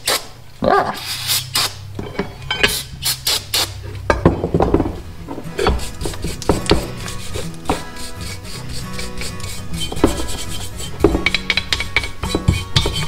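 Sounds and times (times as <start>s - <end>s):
hand tool scraping metal: 0.9s - 4.2s, 5.3s - 13.0s
metal parts clinking: 1.2s - 7.7s, 11.0s - 13.0s.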